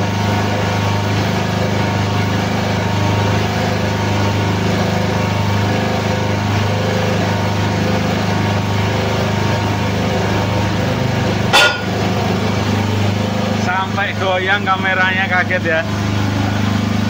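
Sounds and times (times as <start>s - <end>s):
hydraulic press running: 7.9s - 13.6s
loud bang of rim breaking free: 11.5s - 12.0s.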